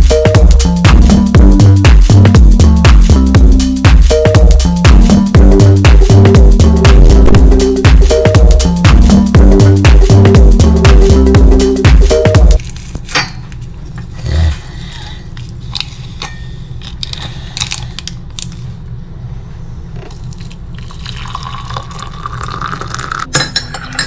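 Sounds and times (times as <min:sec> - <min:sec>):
steady low hum: 0:00.0 - 0:21.0
paper sachets rustling and tearing: 0:12.6 - 0:13.1.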